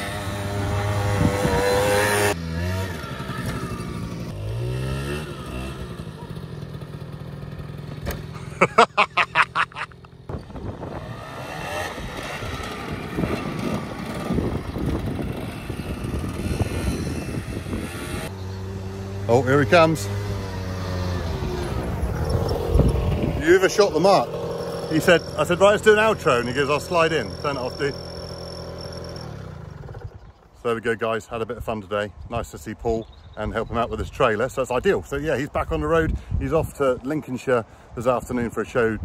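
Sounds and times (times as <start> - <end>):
quad bike engine revving: 0.0 - 30.4.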